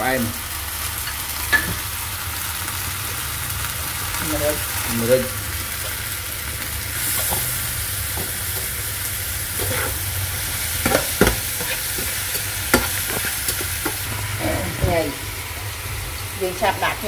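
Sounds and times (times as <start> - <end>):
meat sizzling in a frying pan: 0.0 - 17.0
spatula scraping a pan: 9.5 - 14.1.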